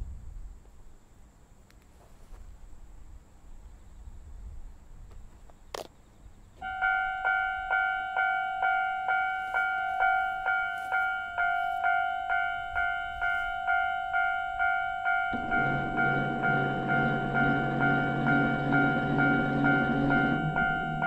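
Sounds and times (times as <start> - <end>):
level crossing warning bell: 6.6 - 21.0.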